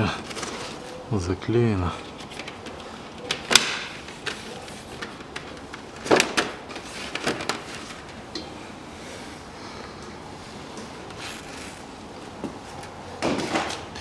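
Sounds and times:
plastic packaging crackling: 2.0 - 8.3.

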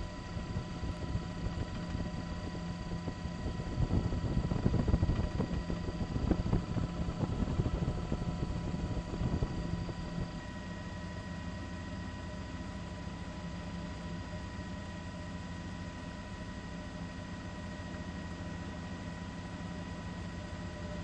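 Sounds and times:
helicopter running: 0.0 - 10.7.

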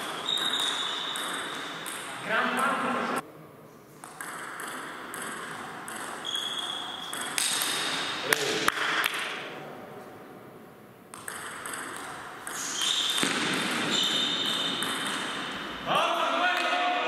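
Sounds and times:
short high squeaks: 0.0 - 1.6, 6.2 - 7.1, 12.5 - 13.2, 13.9 - 14.8
table tennis ball clicking: 0.4 - 2.1, 4.0 - 7.9, 11.1 - 13.8.

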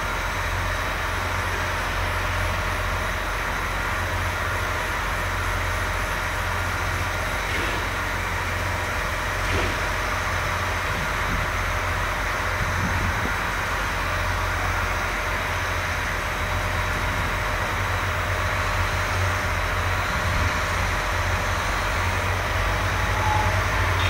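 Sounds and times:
tractor engines droning: 0.0 - 24.0.

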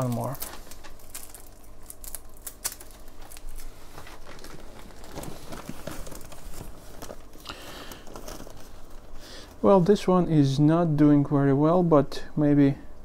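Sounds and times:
paper and plastic rustling: 0.0 - 9.7.

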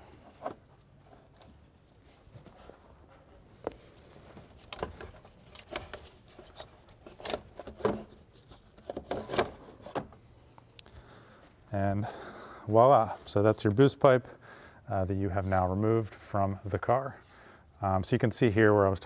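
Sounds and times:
pipe scraping against parts: 2.4 - 10.2.

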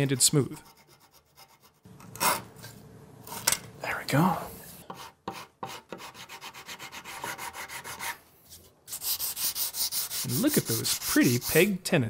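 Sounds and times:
sandpaper rubbing wood: 5.0 - 8.2, 8.9 - 11.7.

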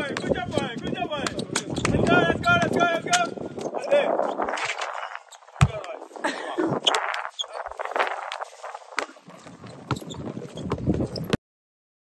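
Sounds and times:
basketballs bouncing: 0.0 - 3.3, 5.6 - 5.9, 9.0 - 11.3.

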